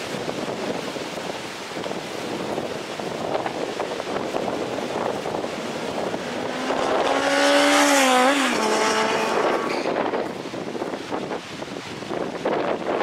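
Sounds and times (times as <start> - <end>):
wind buffeting microphone: 0.0 - 13.0
motorcycle passing at speed: 5.6 - 10.2.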